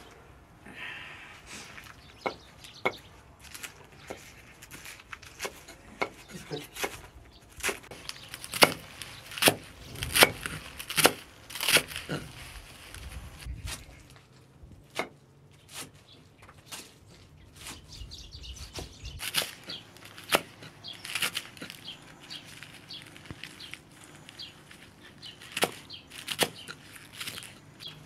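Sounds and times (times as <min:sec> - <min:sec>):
knife chopping greens: 0:05.2 - 0:12.0, 0:24.7 - 0:28.0.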